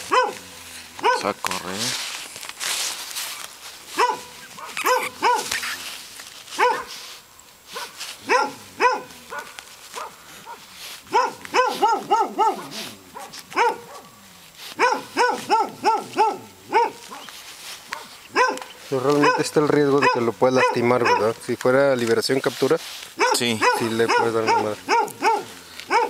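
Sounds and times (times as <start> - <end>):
dog barking: 0.0 - 1.8, 3.9 - 5.8, 6.6 - 7.0, 7.7 - 21.4, 23.2 - 26.0.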